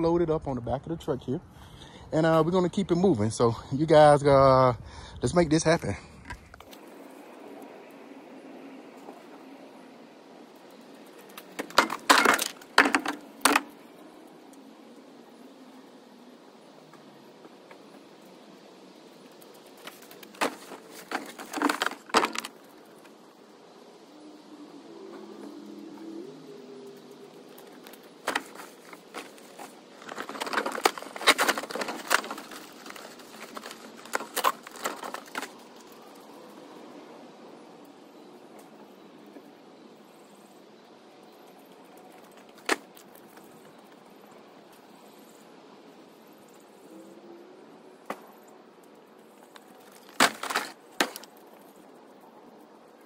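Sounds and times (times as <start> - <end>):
junk clattering onto a trailer: 11.5 - 13.7, 20.2 - 22.6, 28.2 - 35.5, 49.9 - 51.3.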